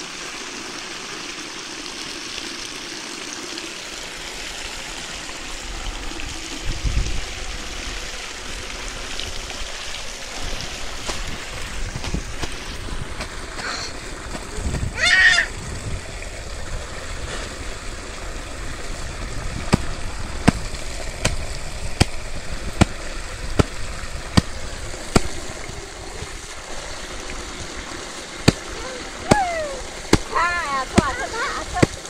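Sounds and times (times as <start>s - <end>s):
water gushing and splashing: 0.0s - 32.0s
paddle slapping wet clothes: 11.0s - 14.9s, 19.6s - 22.2s, 22.8s - 25.5s, 28.4s - 32.0s.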